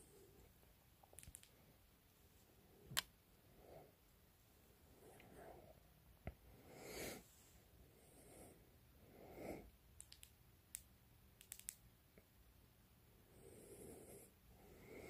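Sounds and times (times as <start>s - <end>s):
soft breathing: 0.0s - 0.6s, 1.6s - 9.8s, 13.2s - 15.0s.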